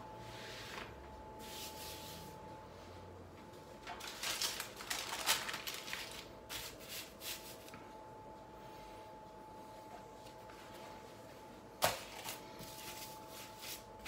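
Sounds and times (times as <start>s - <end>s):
faint steady hum: 0.0s - 14.0s
baking paper rustling: 3.8s - 7.8s.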